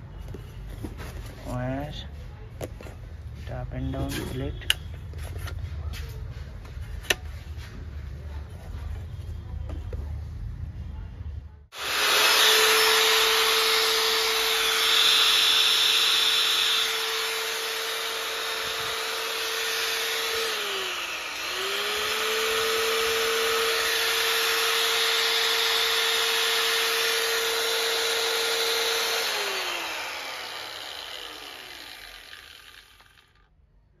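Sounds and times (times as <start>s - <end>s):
electric motor whining: 11.8s - 33.4s.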